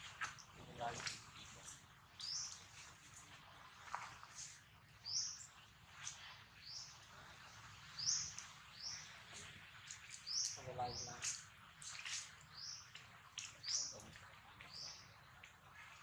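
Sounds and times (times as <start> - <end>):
small bird chirping: 0.2 - 2.9, 4.3 - 7.0, 7.9 - 15.2.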